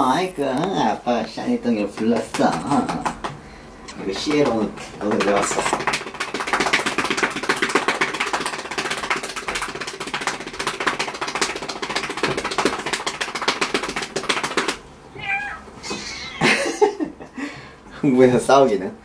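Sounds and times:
hand patting cat: 0:04.2 - 0:16.1
cat crying: 0:15.1 - 0:16.6.

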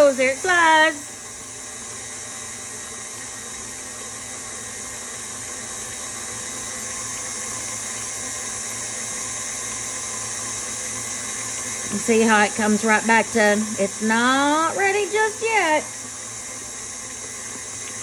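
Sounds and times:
stand mixer motor humming: 0:00.0 - 0:18.0.

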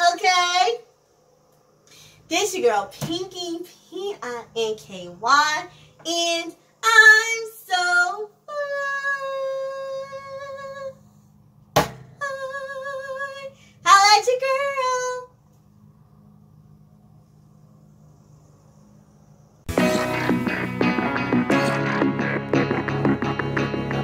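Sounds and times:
faint low hum: 0:00.0 - 0:19.7
woman singing high notes: 0:05.2 - 0:11.0, 0:12.2 - 0:15.3.

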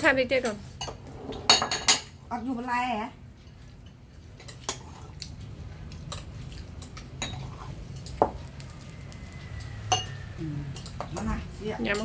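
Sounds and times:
utensils clinking on dishes: 0:00.4 - 0:02.2, 0:05.9 - 0:12.0.

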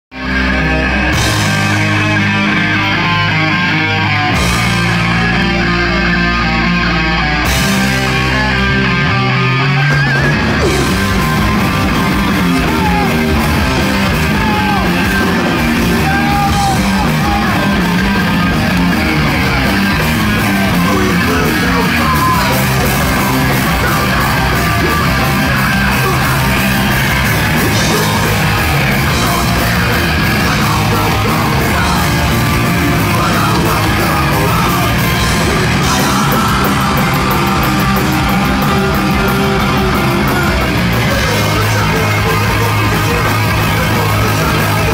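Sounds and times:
punk band playing: 0:00.1 - 0:44.9
singer shouting: 0:00.9 - 0:44.9.

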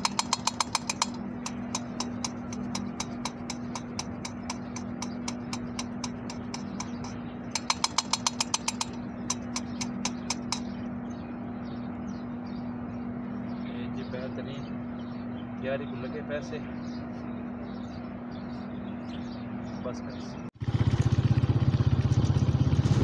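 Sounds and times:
valve clicking against seat: 0:00.0 - 0:10.7
steady low hum: 0:00.0 - 0:22.8.

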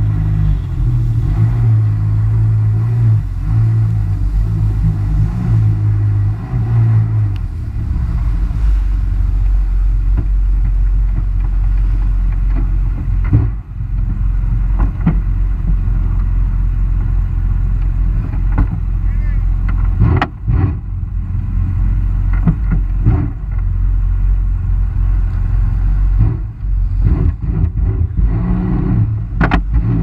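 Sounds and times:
hull hissing through water: 0:00.0 - 0:10.6
jet ski engine: 0:00.0 - 0:30.0.

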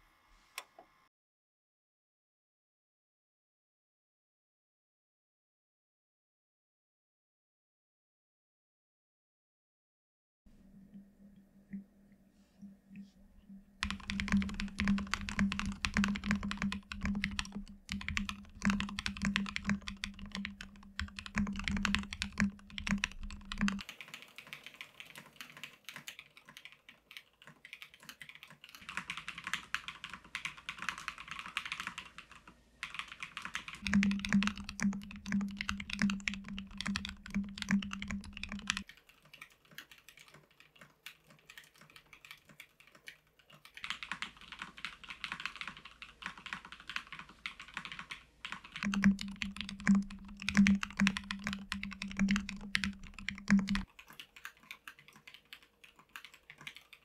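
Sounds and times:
mechanical keyboard typing: 0:13.8 - 0:57.0.

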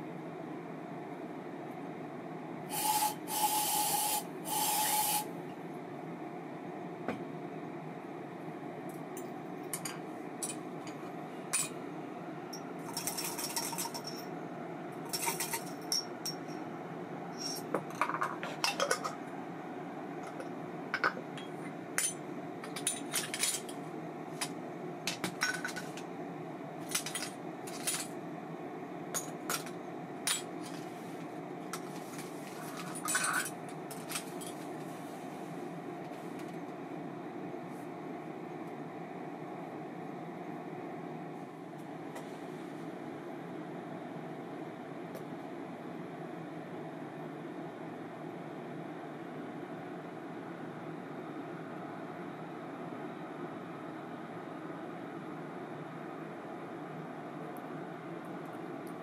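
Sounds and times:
steady low hum: 0:00.0 - 0:59.0
metal parts clicking and clinking: 0:26.9 - 0:28.1.

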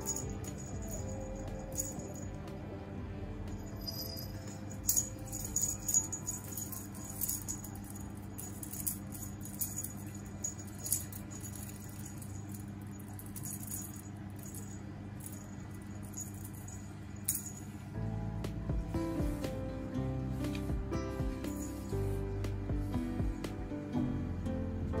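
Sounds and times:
soft background music: 0:00.0 - 0:25.0
plastic beads rattling on tile: 0:04.8 - 0:17.6.

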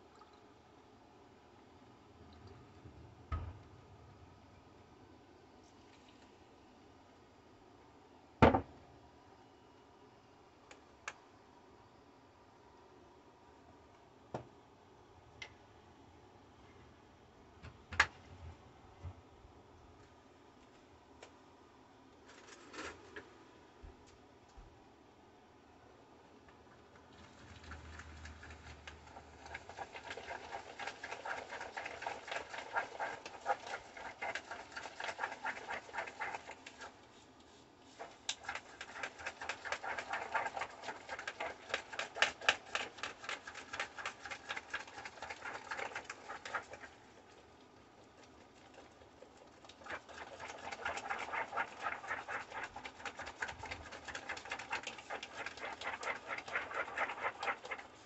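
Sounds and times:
utensil beating eggs in a bowl: 0:27.1 - 0:58.0.

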